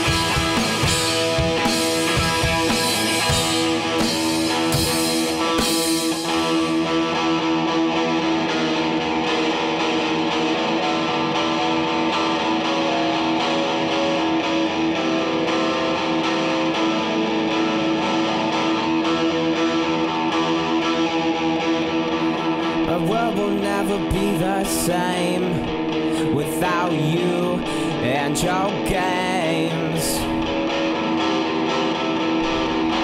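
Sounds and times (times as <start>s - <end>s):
drums and cymbal crashes: 0.0s - 6.8s
electric guitar strummed chords: 0.0s - 33.0s.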